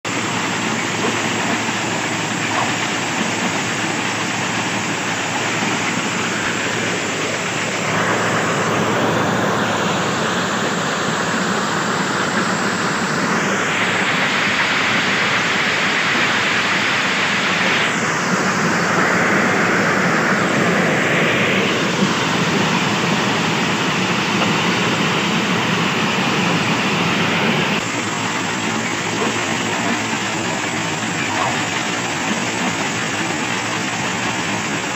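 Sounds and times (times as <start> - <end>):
machine noise: 0.0 - 34.9.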